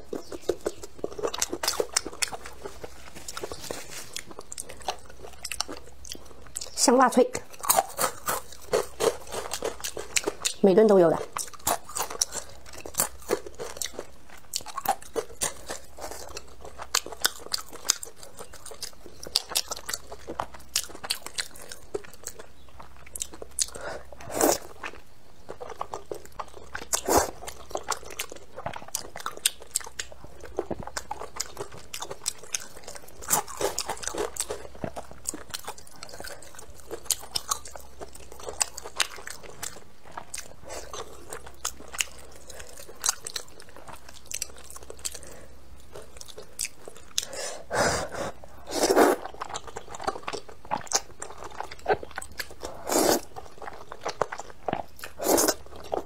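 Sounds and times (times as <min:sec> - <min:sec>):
wet chewing with crunches: 0:00.0 - 0:56.0
slurping noodles: 0:47.7 - 0:49.3, 0:52.7 - 0:53.3.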